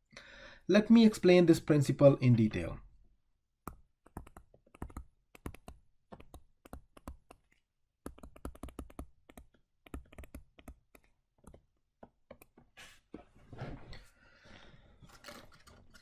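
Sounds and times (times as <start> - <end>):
stylus tapping on screen: 3.6 - 12.7.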